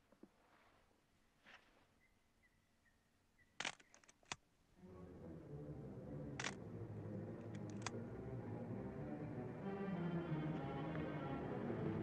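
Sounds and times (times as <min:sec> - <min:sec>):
low orchestral music: 0:04.7 - 0:12.0.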